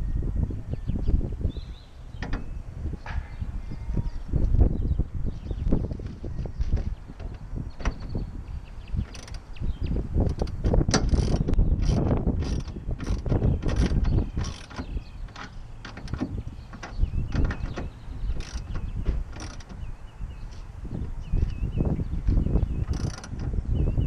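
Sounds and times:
metal hardware clicking and rattling: 9.0s - 9.6s, 10.2s - 19.8s.

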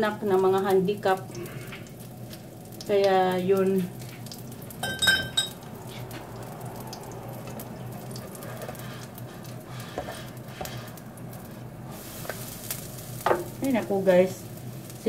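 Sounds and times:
batter sizzling in frying pan: 0.0s - 15.0s
utensil clink: 4.8s - 5.6s
spatula tapping: 9.9s - 10.9s.

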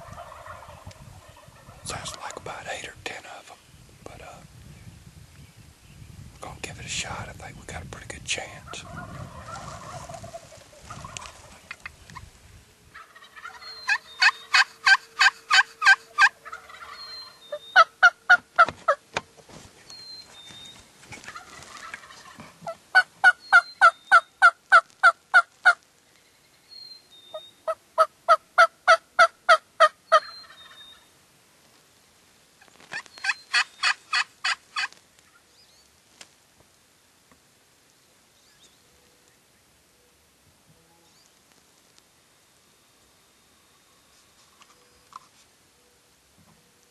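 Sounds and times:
wild turkeys calling: 0.0s - 2.8s, 8.6s - 12.3s, 12.9s - 19.0s, 19.8s - 25.8s, 26.8s - 31.1s, 32.6s - 35.9s.

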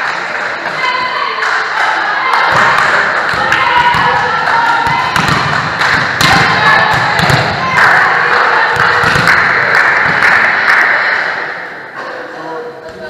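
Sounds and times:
players calling and chatting: 0.2s - 13.0s
volleyball bouncing on floor: 2.4s - 8.0s, 8.7s - 10.4s.

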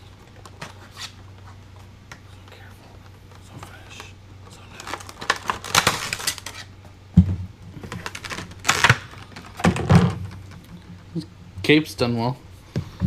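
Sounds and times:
packaging rustling and clicking: 3.3s - 6.7s, 7.8s - 10.8s.

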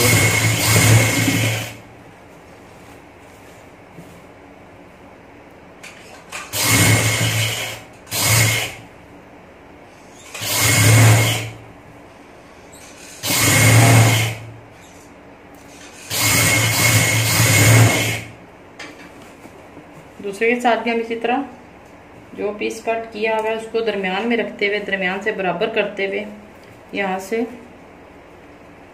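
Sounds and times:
industrial sewing machine stitching: 0.0s - 1.8s, 6.3s - 8.8s, 10.2s - 11.6s, 12.8s - 14.5s, 15.7s - 18.3s.

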